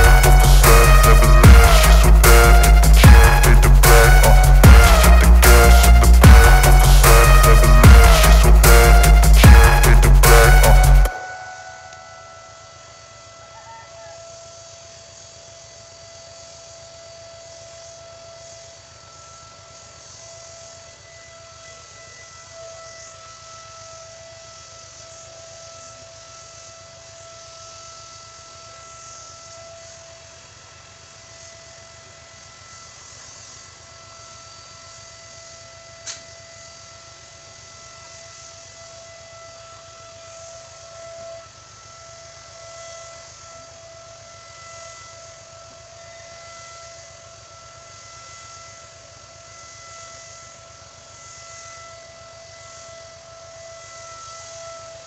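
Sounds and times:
air compressor whine: 0.0 - 55.0
steady hiss: 14.3 - 55.0
sharp click: 36.0 - 36.3.

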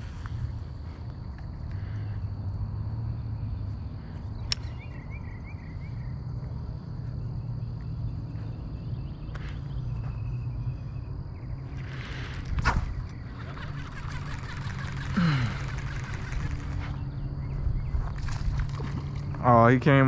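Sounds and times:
steady low rumble: 0.0 - 13.4, 14.7 - 20.0
short trilling call: 11.8 - 17.0.

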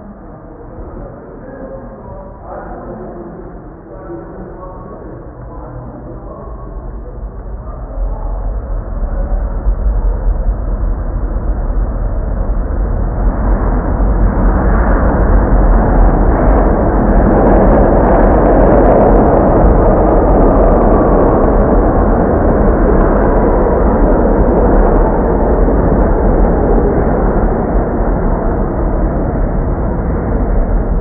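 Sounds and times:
subway train rumble: 0.0 - 31.0.

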